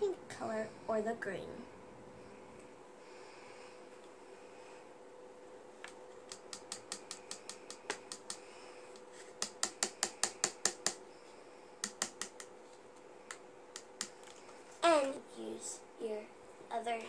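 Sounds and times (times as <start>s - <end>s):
plastic spoon tapping bowl rim: 6.3s - 8.4s, 9.4s - 11.0s, 11.8s - 12.6s.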